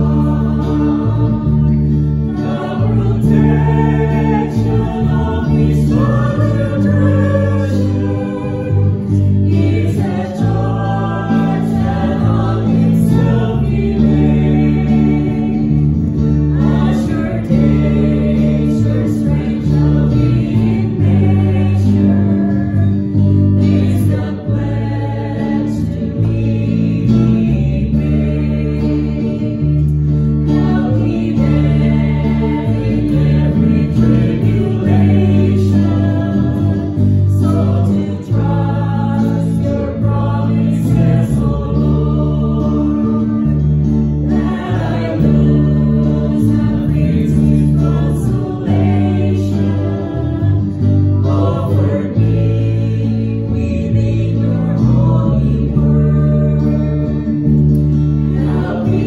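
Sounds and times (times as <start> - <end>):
electric and acoustic guitars: 0.0 - 59.0
mixed choir singing worship song: 0.0 - 59.0
steady bass notes: 0.0 - 59.0.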